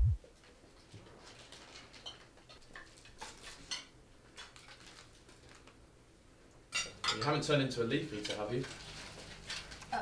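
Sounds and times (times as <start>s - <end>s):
deep low boom: 0.0s - 0.2s
cutlery clinking on plates: 1.9s - 4.9s, 6.7s - 7.5s.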